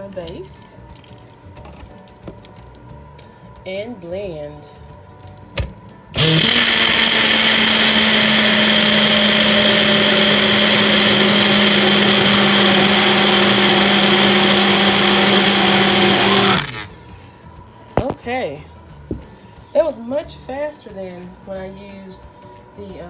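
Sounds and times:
blender motor running: 6.2s - 17.0s.

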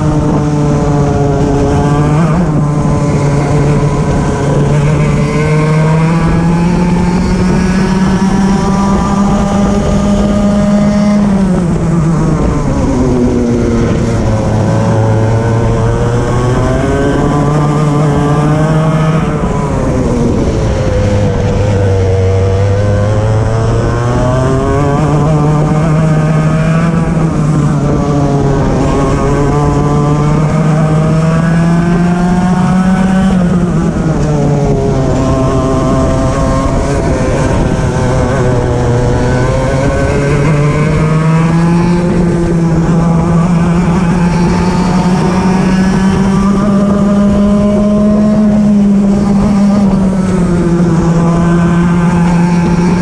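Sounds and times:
kart engine revving: 0.0s - 53.0s.

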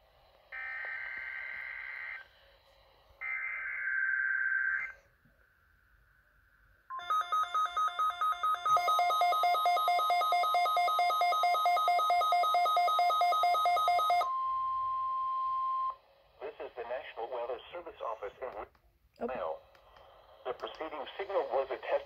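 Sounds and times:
warbling two-tone alarm: 0.5s - 2.4s, 3.1s - 5.1s, 6.9s - 16.0s.

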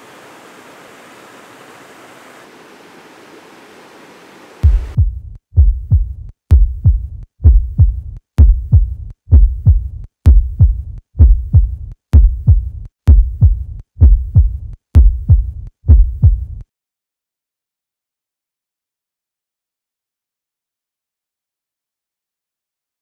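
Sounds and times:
faint outdoor hiss: 0.0s - 5.0s
heartbeat lub-dub thumps: 4.6s - 16.7s.

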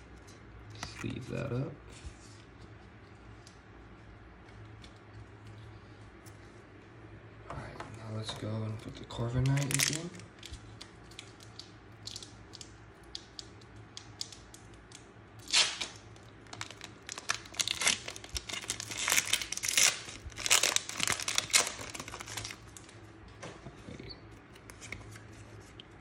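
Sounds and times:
foil wrapper crinkling and tearing: 9.1s - 13.4s, 14.1s - 23.0s.

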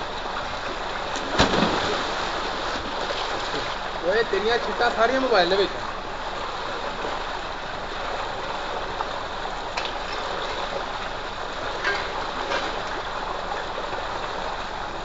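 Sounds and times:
light splashes in water: 1.1s - 3.9s.

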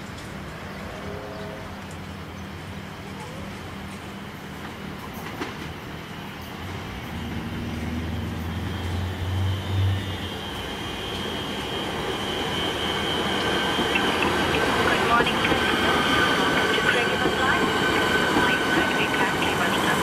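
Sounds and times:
train rumble on track: 0.0s - 20.0s
steady high squeal: 6.0s - 20.0s.

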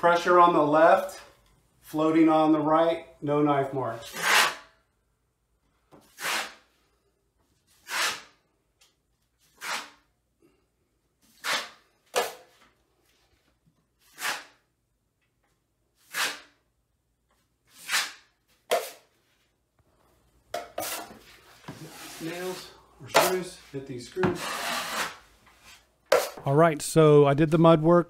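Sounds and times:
taping knife scraping drywall: 4.0s - 4.8s, 6.0s - 6.9s, 7.6s - 8.5s, 9.4s - 10.1s, 11.2s - 12.7s, 14.0s - 14.7s, 16.0s - 16.7s, 17.6s - 19.1s, 24.3s - 26.4s.

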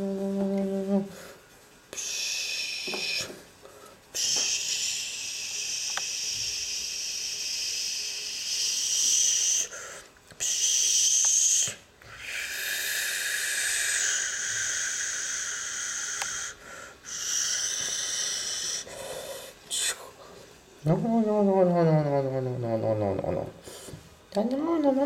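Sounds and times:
mouth-made hissing: 0.7s - 20.3s.

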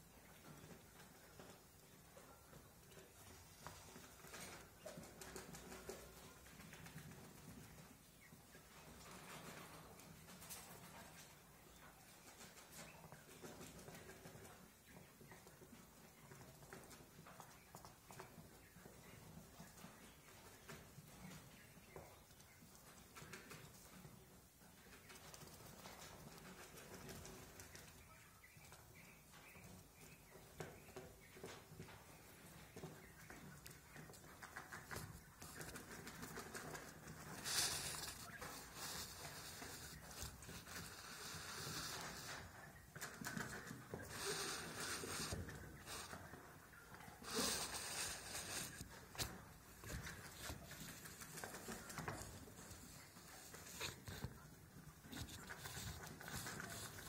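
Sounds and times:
quail rustling in straw: 0.2s - 57.0s
rustling in straw: 36.8s - 42.5s, 44.1s - 46.2s, 47.2s - 54.3s
small taps and scratches: 47.2s - 57.0s.

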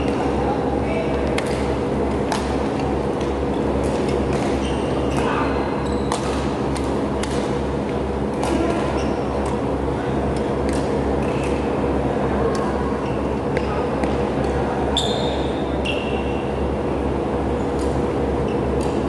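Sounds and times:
racket hitting shuttlecock: 1.3s - 5.3s, 6.0s - 7.6s, 8.4s - 9.6s, 10.4s - 11.6s
shoe squeaks on court floor: 4.6s - 6.2s, 15.0s - 16.3s.

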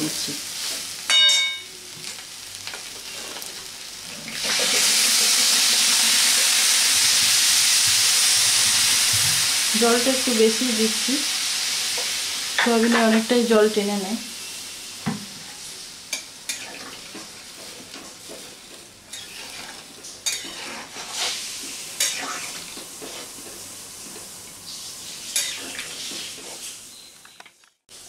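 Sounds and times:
hiss of hot cooking liquid: 1.8s - 13.0s, 13.8s - 27.0s
metal spatula scraping pan: 19.1s - 21.4s, 22.0s - 23.3s.

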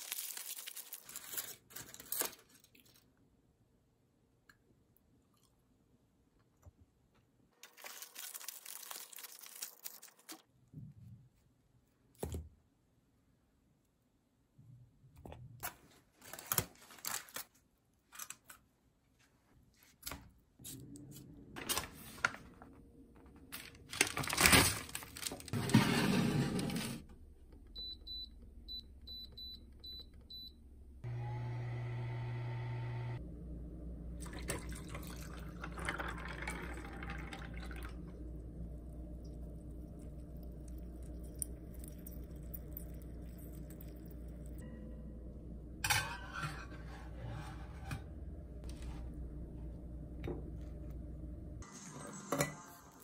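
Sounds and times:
aluminium foil crinkling: 0.0s - 3.0s, 7.6s - 10.5s, 23.5s - 25.6s
convection oven humming: 30.9s - 53.0s.

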